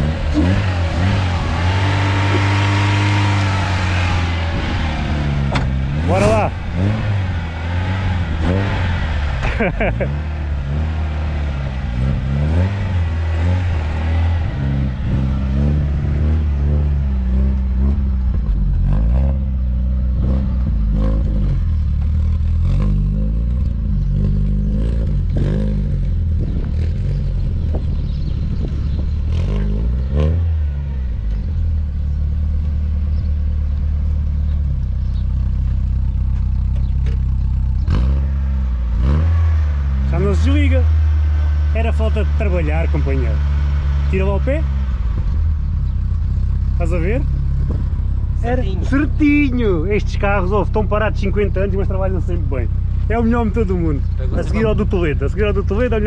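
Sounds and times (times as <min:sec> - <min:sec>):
car engine revving unevenly: 0:00.0 - 0:56.0
clunks and rattles: 0:05.4 - 0:07.0, 0:34.5 - 0:38.2, 0:47.4 - 0:48.3.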